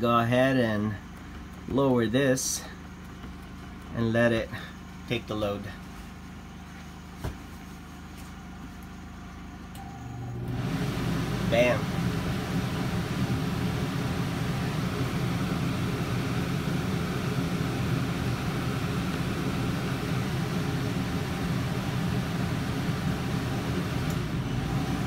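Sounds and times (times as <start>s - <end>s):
air conditioner hum and fan: 0.0s - 25.0s
generator running: 0.0s - 25.0s.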